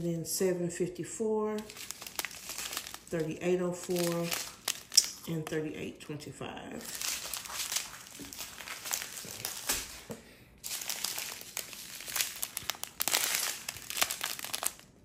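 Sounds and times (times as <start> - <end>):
plastic bags crinkling: 1.5 - 5.6, 6.8 - 15.0.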